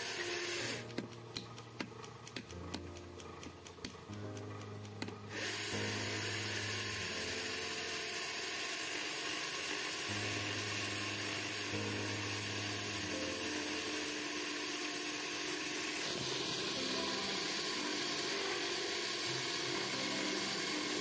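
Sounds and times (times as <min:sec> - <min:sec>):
wood lathe running: 0:00.0 - 0:01.0, 0:05.3 - 0:21.0.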